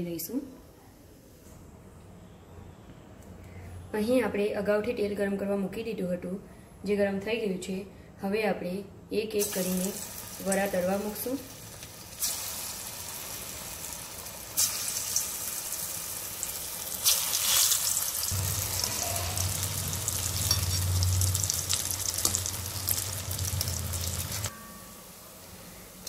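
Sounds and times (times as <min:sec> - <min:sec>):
food deep-frying in oil: 0:09.4 - 0:24.5
low steady hum: 0:18.3 - 0:26.0.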